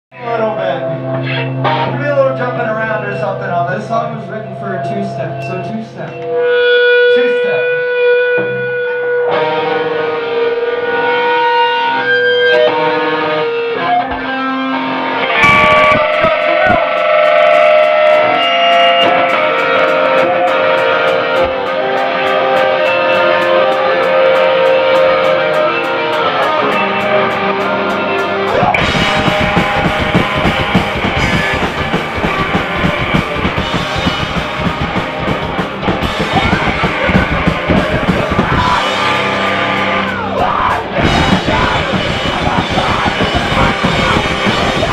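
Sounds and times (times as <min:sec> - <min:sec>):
ringing electric guitar notes: 0:00.1 - 0:44.9
rock band playing: 0:00.1 - 0:44.9
drum ticks: 0:15.4 - 0:25.4, 0:28.5 - 0:44.9.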